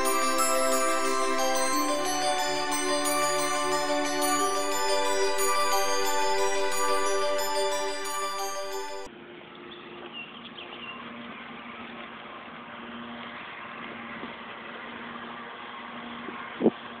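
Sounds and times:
glockenspiel-like mallet music: 0:00.0 - 0:09.1.

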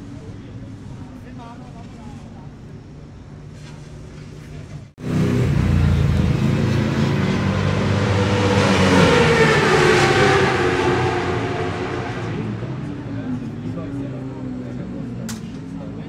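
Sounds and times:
racing motorcycle engine revving: 0:05.0 - 0:16.0.

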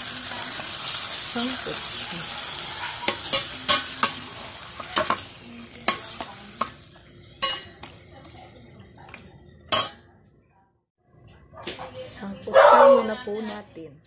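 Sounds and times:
squid sizzling in pot: 0:00.0 - 0:08.4
metal spoon clinking on pot: 0:03.0 - 0:05.2, 0:05.9 - 0:08.0, 0:09.6 - 0:10.1.

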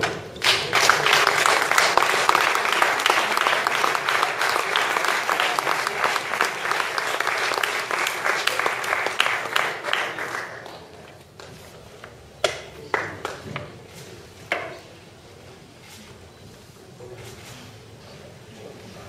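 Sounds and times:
audience applauding: 0:00.4 - 0:10.9.

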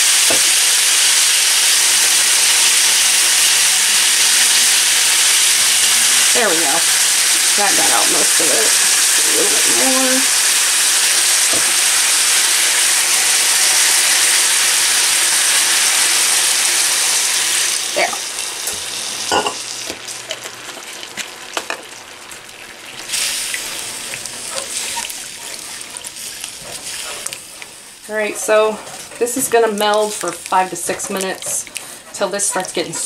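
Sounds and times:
food sizzling in a skillet: 0:00.0 - 0:33.0
spatula scraping a pan: 0:26.6 - 0:30.1, 0:30.7 - 0:33.0.

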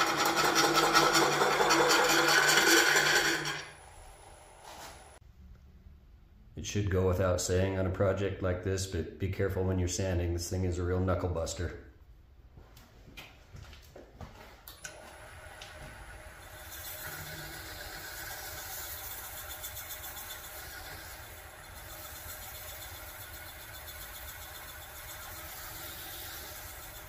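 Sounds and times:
wood lathe running: 0:00.0 - 0:04.6, 0:14.9 - 0:27.0
sandpaper hissing on spinning wood: 0:16.4 - 0:27.0.

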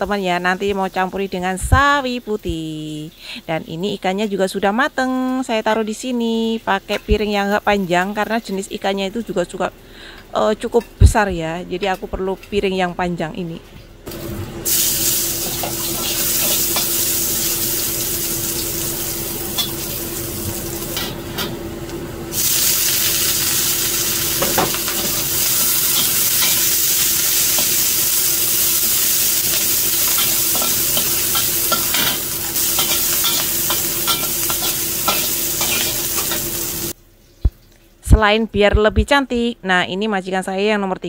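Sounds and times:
scallions sizzling in hot oil: 0:14.1 - 0:21.5, 0:22.3 - 0:37.0
metal spatula scraping wok: 0:24.4 - 0:36.7.

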